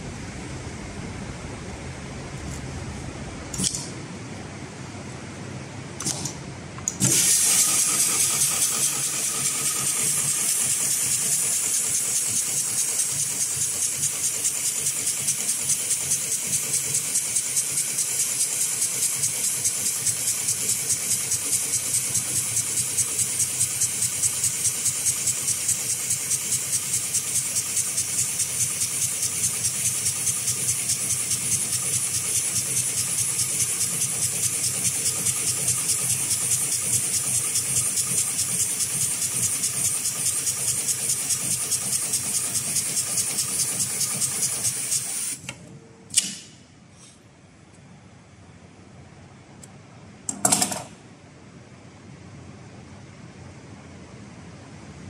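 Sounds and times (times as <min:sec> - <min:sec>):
sewing machine stitching: 0:06.0 - 0:45.4.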